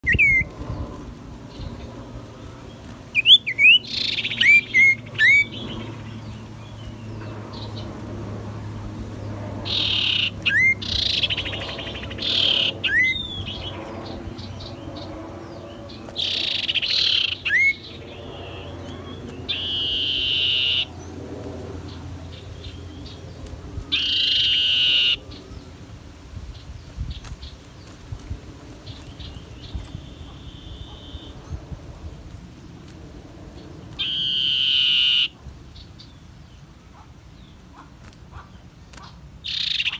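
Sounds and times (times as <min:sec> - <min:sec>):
bird whistling and trilling: 0:00.0 - 0:00.5, 0:03.1 - 0:05.8, 0:09.7 - 0:13.8, 0:16.2 - 0:20.9, 0:23.9 - 0:25.2, 0:29.7 - 0:31.4, 0:34.0 - 0:35.3, 0:39.5 - 0:39.9.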